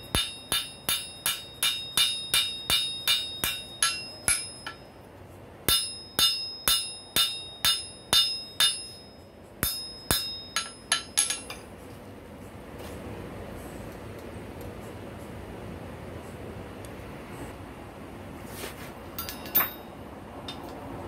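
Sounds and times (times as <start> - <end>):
hammer ringing on anvil: 0.0 - 5.0, 5.7 - 11.6, 19.2 - 19.9.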